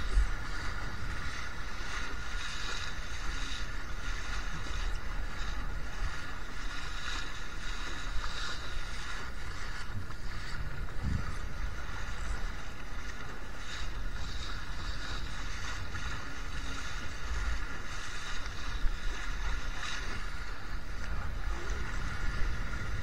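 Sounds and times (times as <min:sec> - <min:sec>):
water rushing along a hull: 0:00.0 - 0:23.0
wind rumble on microphone: 0:00.0 - 0:23.0.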